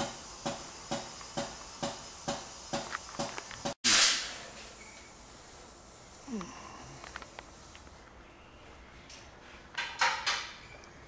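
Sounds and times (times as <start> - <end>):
loud burst of hiss: 0.0 - 6.4.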